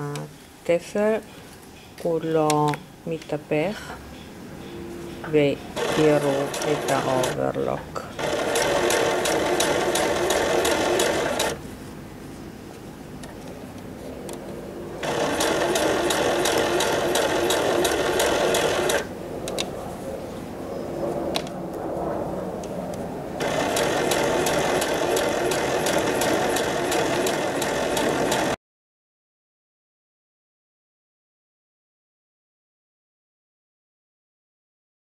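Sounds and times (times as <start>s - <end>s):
sewing machine stitching: 5.8s - 7.4s, 8.2s - 11.6s, 15.0s - 19.1s, 23.4s - 28.6s.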